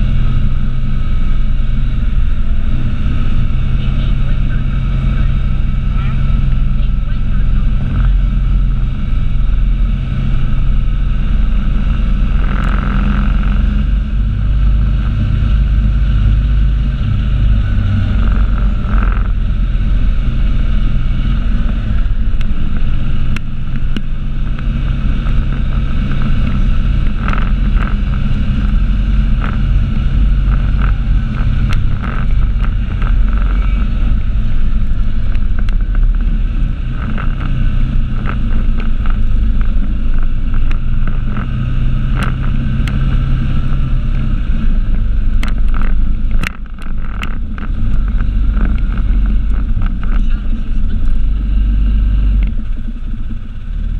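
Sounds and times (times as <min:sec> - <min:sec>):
off-road vehicle engine running: 0:00.0 - 0:53.9
wind buffeting microphone: 0:00.0 - 0:53.9
rattles and clicks: 0:11.9 - 0:14.5, 0:21.4 - 0:53.7.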